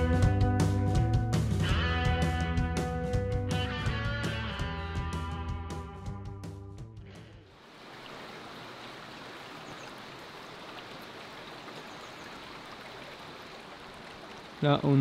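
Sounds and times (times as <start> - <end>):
background music: 0.0 - 7.4
stream water flowing: 7.5 - 15.0.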